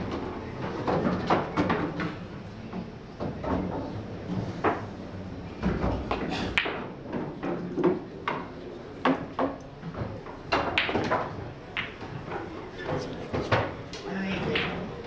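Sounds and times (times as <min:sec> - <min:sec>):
billiard balls clacking: 0:00.0 - 0:04.9, 0:05.6 - 0:15.0
cue striking cue ball: 0:05.9 - 0:09.6, 0:10.5 - 0:12.1.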